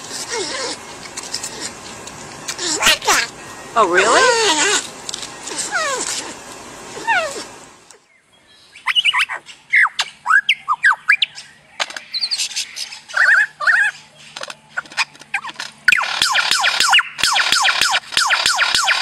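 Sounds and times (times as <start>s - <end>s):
porcupine whining: 0.0s - 7.6s
lyrebird song: 7.1s - 19.0s.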